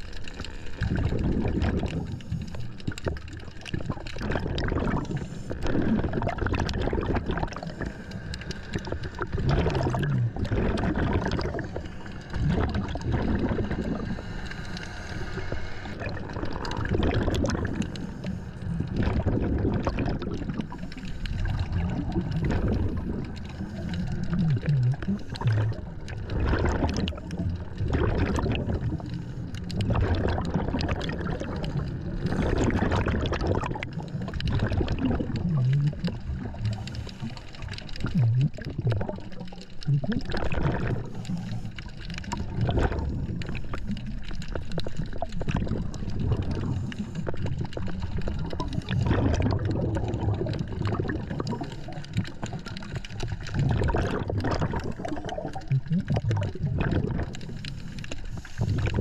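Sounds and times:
exhaled bubbles rushing: 0.0 - 59.0
diver breathing through regulator: 7.4 - 10.2, 10.8 - 19.3, 20.6 - 26.0, 35.9 - 37.8, 40.7 - 44.9, 46.4 - 49.5, 57.3 - 59.0.

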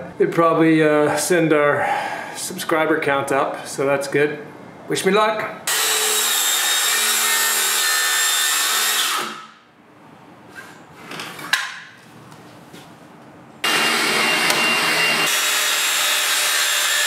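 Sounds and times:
circular saw cutting plywood: 5.7 - 9.5, 13.6 - 17.0.

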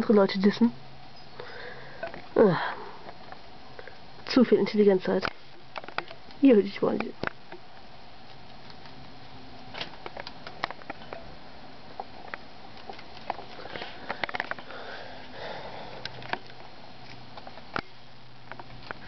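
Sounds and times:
rabbits chewing lettuce: 8.2 - 10.9.

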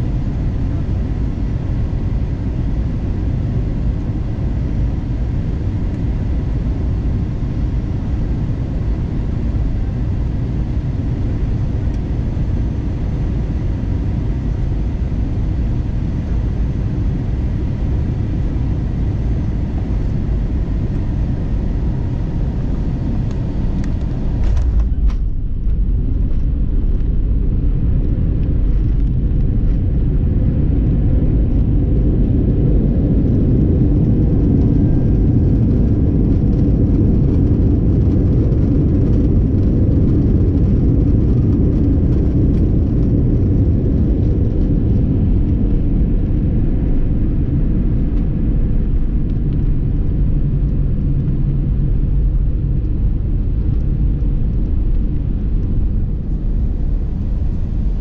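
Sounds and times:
aircraft engines rumbling: 0.0 - 58.0.

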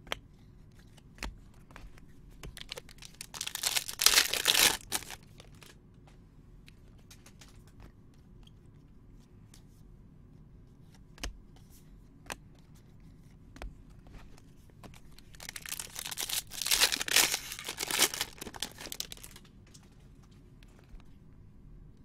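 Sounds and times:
foil wrapper tearing and crinkling: 2.6 - 5.7, 15.0 - 19.5.

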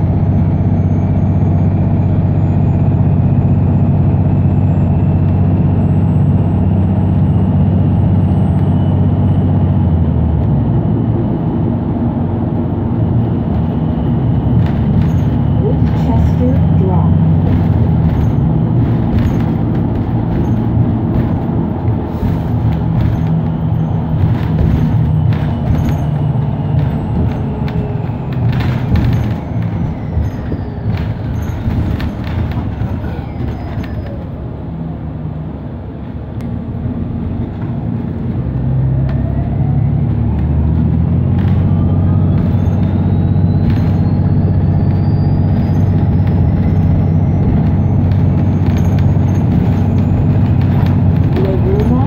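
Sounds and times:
bus drivetrain drone: 0.0 - 52.0
rattles and clicks: 13.4 - 34.4, 40.0 - 52.0.

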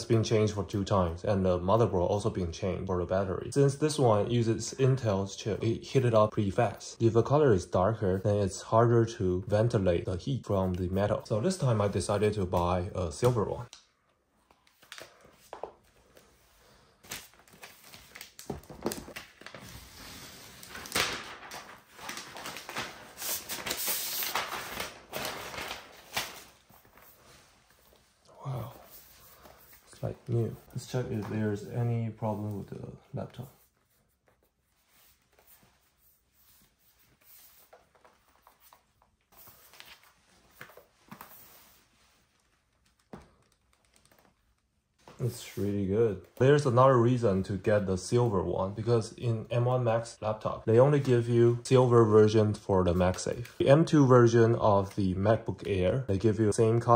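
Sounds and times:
packaging rustling and crinkling: 14.4 - 28.1.

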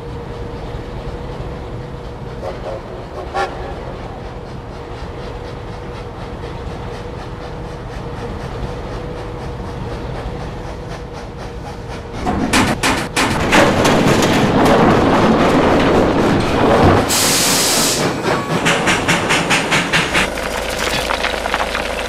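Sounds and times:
rhythmic clatter: 18.0 - 22.0
coal crashing and pouring: 20.3 - 22.0.

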